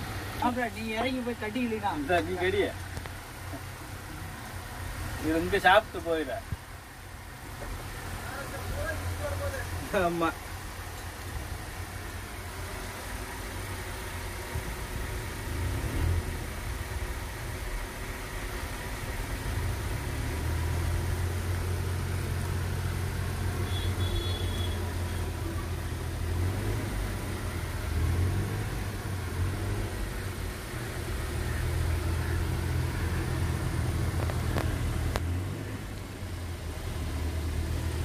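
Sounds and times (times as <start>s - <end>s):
vehicle engine rumbling: 0.0s - 38.0s.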